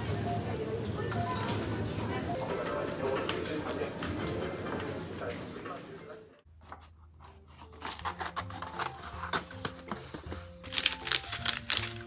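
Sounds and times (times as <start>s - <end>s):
plastic wrappers crinkling: 7.5s - 12.0s.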